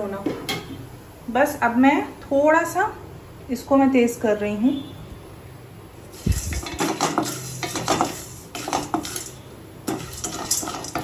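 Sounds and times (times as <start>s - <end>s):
metal spatula scraping a pan: 6.1s - 11.0s.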